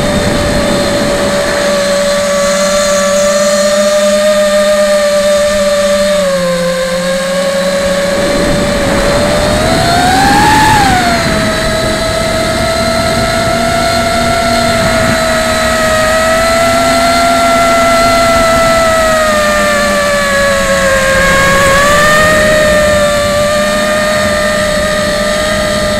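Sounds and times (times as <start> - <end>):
quadcopter motors whining: 0.0 - 25.9
rushing air: 6.4 - 25.8.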